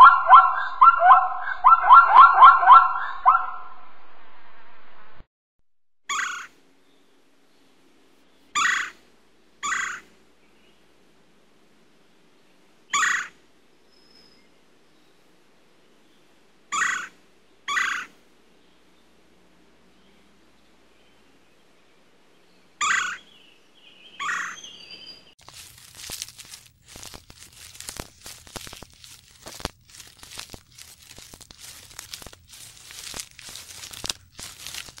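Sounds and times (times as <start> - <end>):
woodpecker sharp kik calls: 0.0 - 3.6, 6.1 - 6.5, 8.6 - 9.0, 9.6 - 10.0, 12.9 - 13.4, 16.7 - 18.1, 22.8 - 23.2, 24.2 - 24.7
zebra barking call: 0.0 - 3.7.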